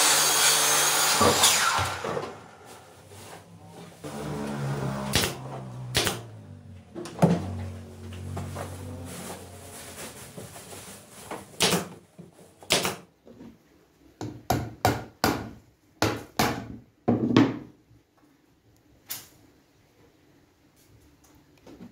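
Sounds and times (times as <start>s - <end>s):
pneumatic nailer firing into wood: 0.0s - 2.4s, 4.1s - 6.3s, 11.6s - 11.9s, 12.7s - 13.0s.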